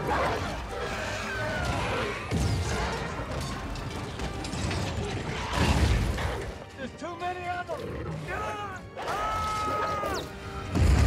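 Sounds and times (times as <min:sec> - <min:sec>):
mechanical clanking and crashes: 0:02.3 - 0:06.7.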